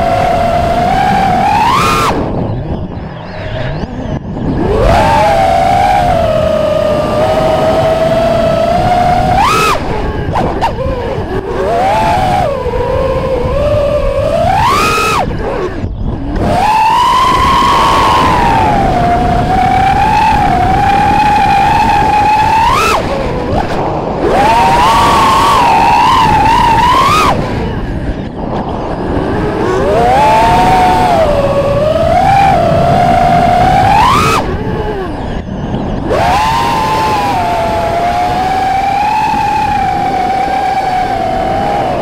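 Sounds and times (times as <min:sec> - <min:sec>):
drone motors whining: 0:00.0 - 0:42.0.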